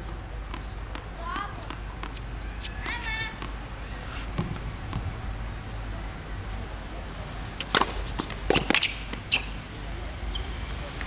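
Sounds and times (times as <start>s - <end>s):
racket hitting ball: 0.5s - 3.6s, 4.2s - 5.1s, 7.5s - 9.6s
tennis ball bouncing on court: 0.5s - 3.6s, 4.3s - 5.1s, 7.5s - 9.6s.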